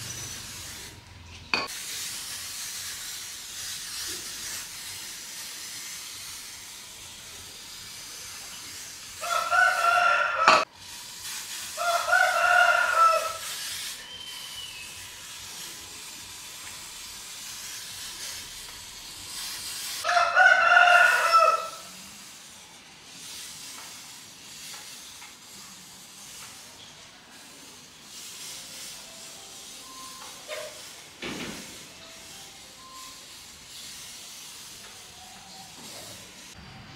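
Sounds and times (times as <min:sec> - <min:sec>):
rooster crowing: 0:09.2 - 0:10.7, 0:11.8 - 0:13.4, 0:20.0 - 0:21.9.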